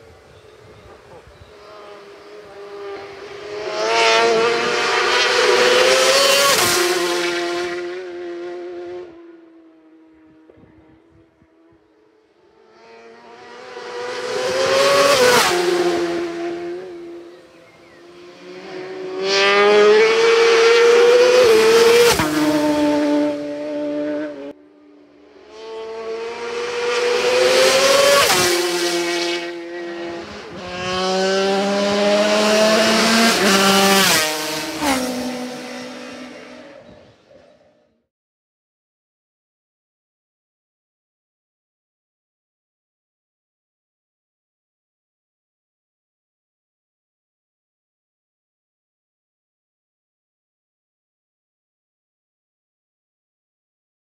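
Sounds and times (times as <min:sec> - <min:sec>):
racing motorcycles passing by: 0:00.1 - 0:37.4.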